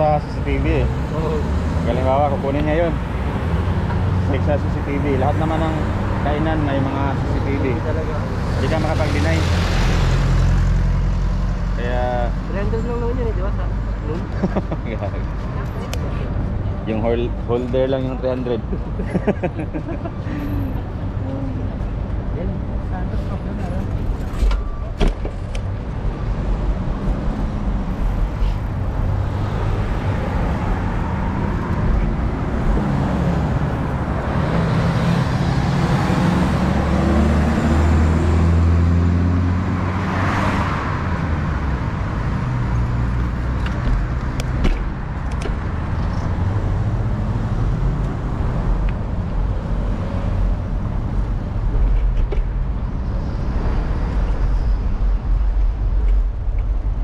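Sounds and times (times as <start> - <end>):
rumble of car engines: 0.0 - 57.0
vehicle passing by: 26.0 - 51.6.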